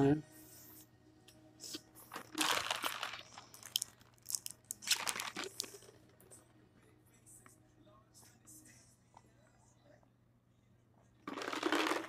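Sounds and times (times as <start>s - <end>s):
person chewing crunchy food: 1.6s - 6.2s.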